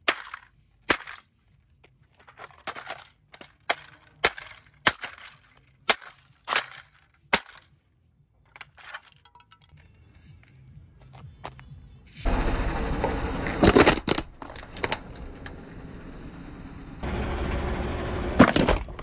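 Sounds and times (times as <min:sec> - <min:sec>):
hammer smashing plastic toy: 0:00.0 - 0:01.3, 0:02.2 - 0:07.7
breaking plastic crackling: 0:02.2 - 0:07.7, 0:13.6 - 0:15.1
plastic pieces clicking: 0:02.2 - 0:07.7, 0:13.6 - 0:15.1.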